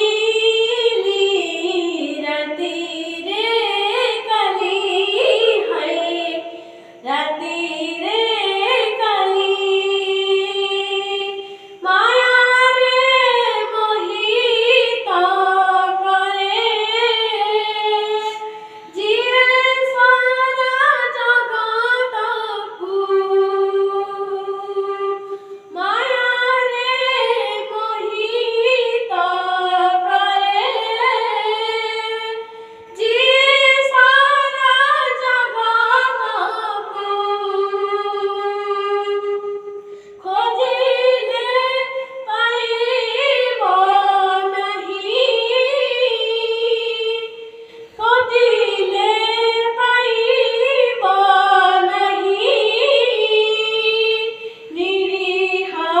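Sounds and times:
boy singing unaccompanied: 0.0s - 39.6s.

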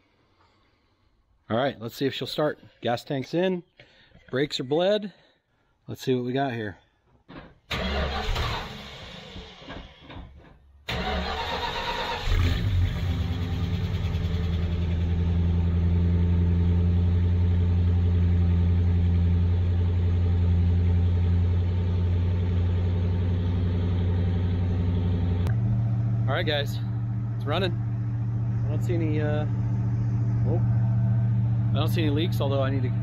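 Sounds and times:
starter motor cranking: 10.9s - 13.1s
car engine idling: 10.9s - 33.0s.

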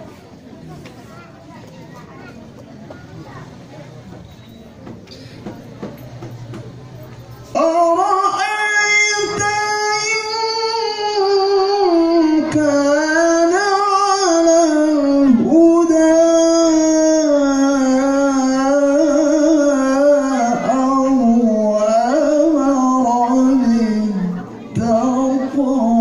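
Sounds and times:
person reciting melodically: 5.4s - 26.0s.

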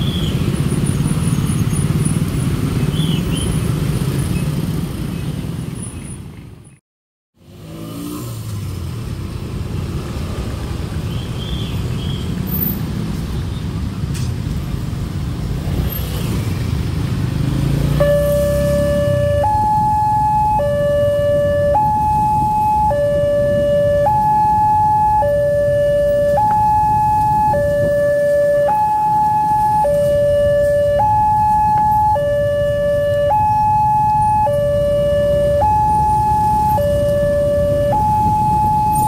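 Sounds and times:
road traffic rumble: 0.0s - 6.8s, 7.4s - 39.0s
level crossing two-tone alarm: 18.0s - 39.0s.

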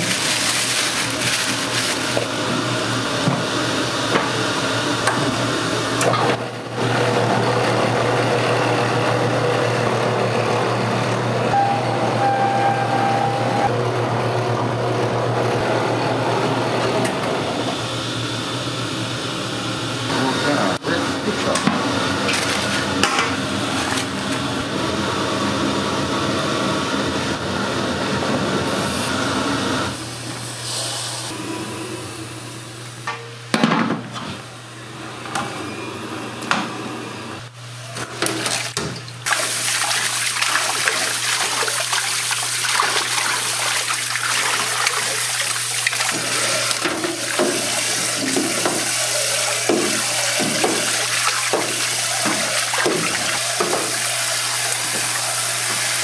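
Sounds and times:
water running from tap: 38.4s - 56.0s.

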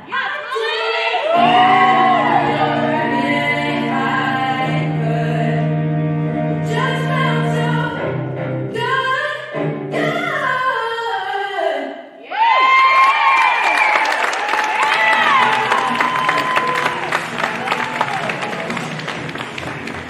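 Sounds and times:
audience cheering: 1.2s - 3.4s, 12.3s - 20.0s
layered choral singing over drone: 1.4s - 8.3s.

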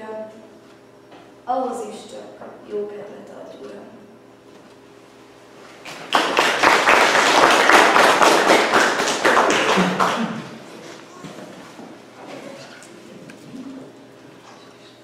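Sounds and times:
people clapping: 5.8s - 10.7s.

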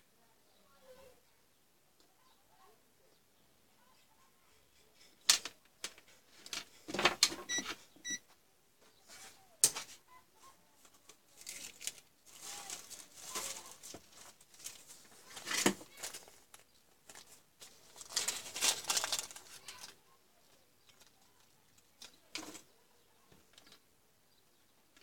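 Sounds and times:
soft rustling handling noise: 3.8s - 23.9s
short electronic beeps: 7.5s - 8.2s.

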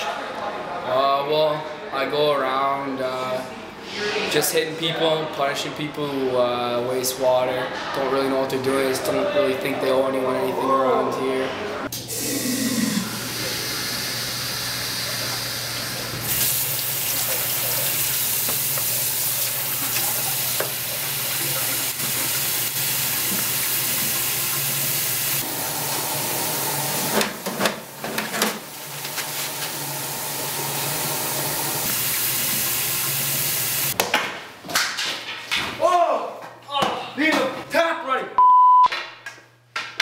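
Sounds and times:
faucet water splashing into sink: 13.3s - 27.5s, 30.0s - 34.0s.

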